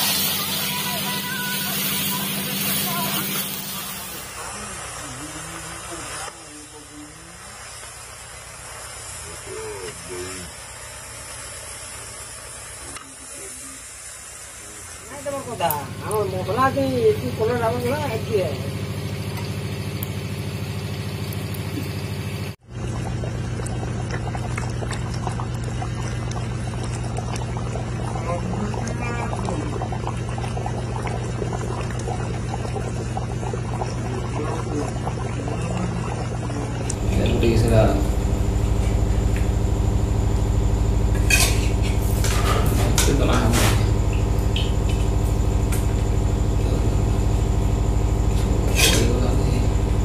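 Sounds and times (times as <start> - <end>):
curry bubbling and popping: 22.7 - 50.0
steady low hum: 36.8 - 50.0.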